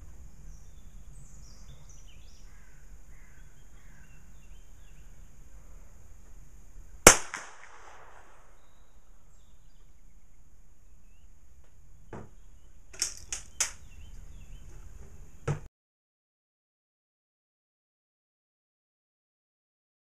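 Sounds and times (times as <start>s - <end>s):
pistol shot with echo: 7.0s - 8.7s
metallic clicks of pistol action: 12.9s - 13.8s.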